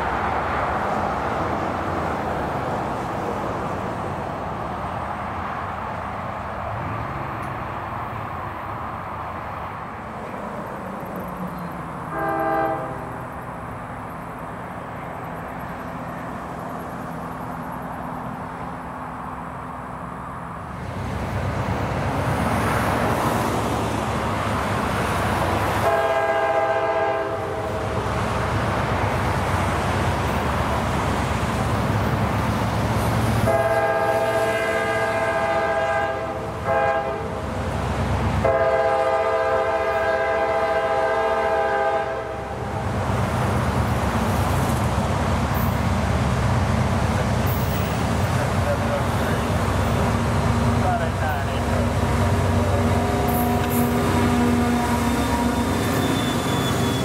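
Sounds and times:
diesel locomotive engines rumbling: 0.0s - 57.0s
train air horn blasts: 12.1s - 13.2s, 25.8s - 28.0s, 33.4s - 37.3s, 38.4s - 42.6s, 52.4s - 57.0s.

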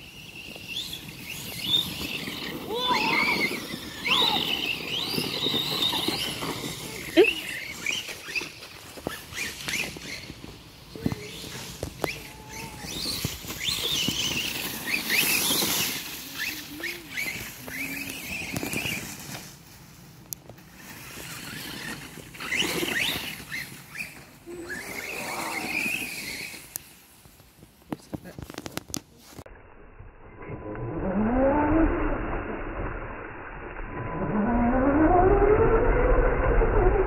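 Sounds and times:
rc car motors whining: 0.0s - 19.6s, 20.6s - 27.0s, 30.5s - 37.0s
tyres churning through leaves: 0.0s - 27.5s.

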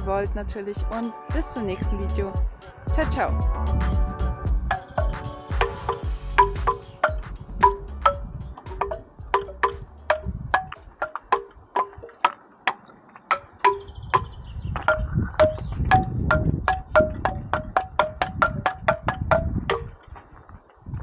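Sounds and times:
melody of sharply struck notes: 3.8s - 10.3s.

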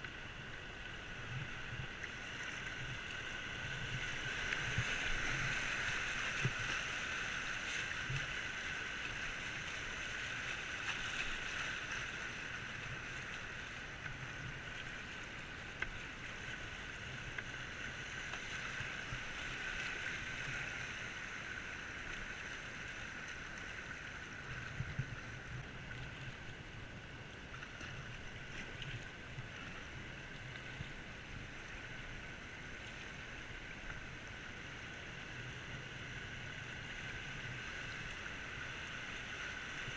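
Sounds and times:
paddle splashes: 0.0s - 39.9s
whitewater rushing and splashing: 1.1s - 27.0s.

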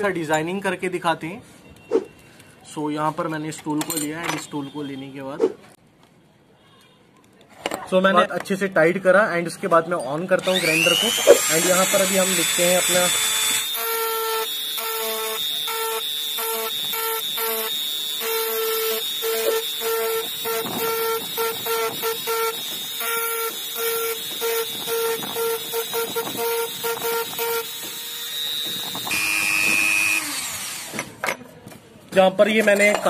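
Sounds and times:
rotary tool whining: 10.4s - 31.1s.

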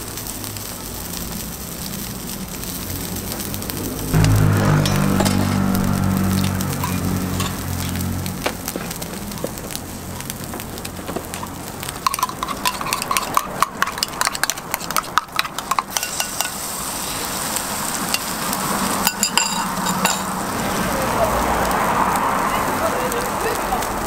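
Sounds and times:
griddle sizzling: 0.0s - 24.0s
spoon clinking in steel cup: 12.0s - 16.6s, 19.1s - 20.3s.

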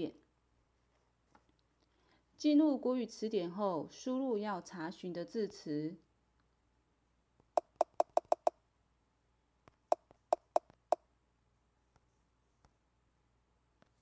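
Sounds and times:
tablet keyboard taps: 7.6s - 8.5s, 9.7s - 11.0s.

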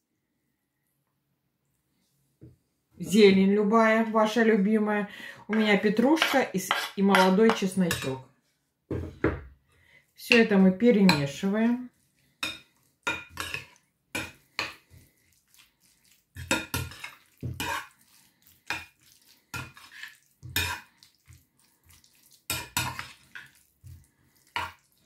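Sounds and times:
metal spoon scraping ceramic bowl: 5.5s - 8.2s, 12.4s - 14.8s, 16.4s - 18.0s, 19.5s - 20.9s.

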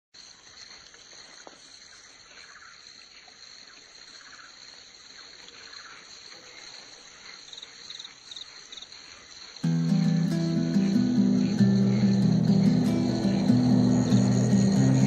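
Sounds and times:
crickets and insects chirping: 0.2s - 15.0s.

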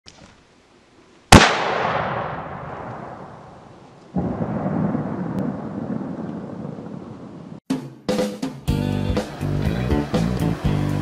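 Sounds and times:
rifle shot ringing out: 1.3s - 5.0s.

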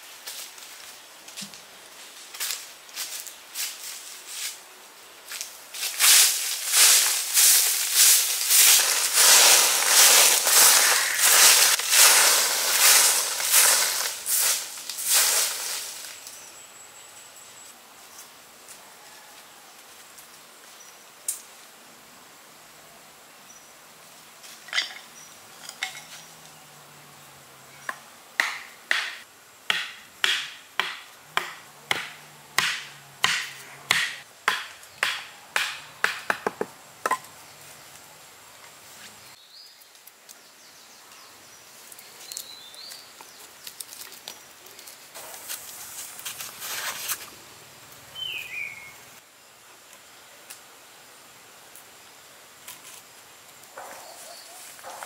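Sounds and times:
rustling: 5.3s - 16.4s, 41.8s - 47.4s
sharp knocks: 28.4s - 37.2s.

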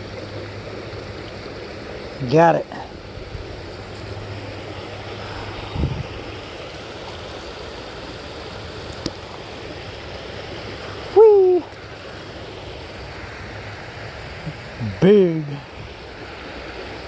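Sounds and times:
creek water rushing over riffle: 0.0s - 17.0s
person calling out: 11.1s - 11.7s.

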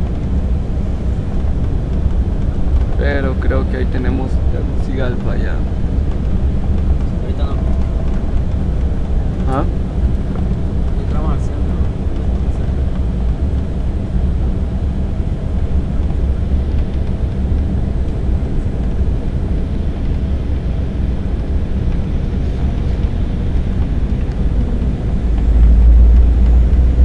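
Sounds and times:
airliner cabin rumble: 0.0s - 27.0s.

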